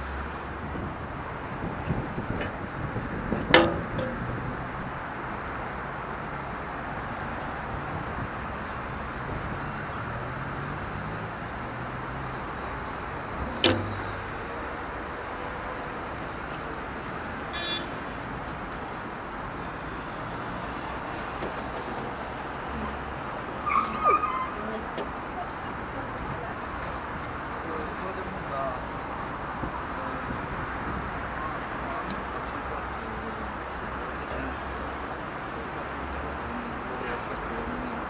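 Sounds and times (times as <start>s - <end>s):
cars passing on street: 0.0s - 38.0s
sharp knocks: 3.5s - 4.4s, 13.5s - 14.3s.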